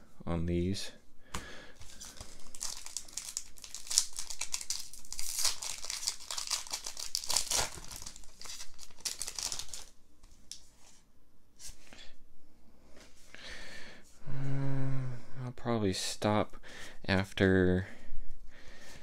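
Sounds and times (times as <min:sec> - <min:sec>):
foil wrapper crinkling and tearing: 0:01.8 - 0:10.0.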